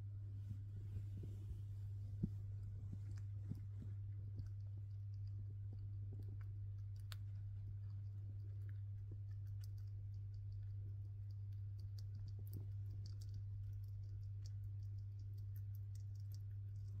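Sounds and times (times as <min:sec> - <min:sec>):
steady low hum: 0:00.0 - 0:17.0
chipmunk teeth ticking on food: 0:04.1 - 0:17.0.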